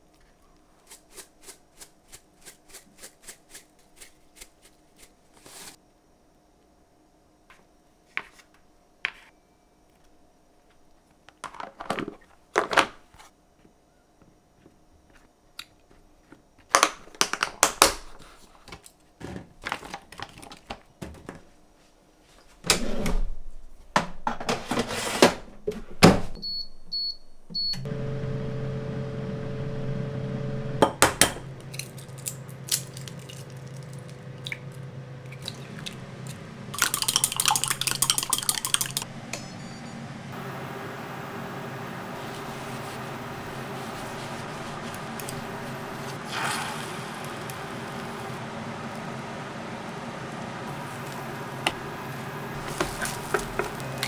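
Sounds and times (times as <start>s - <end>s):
microwave oven humming: 26.4s - 36.8s, 39.1s - 54.0s.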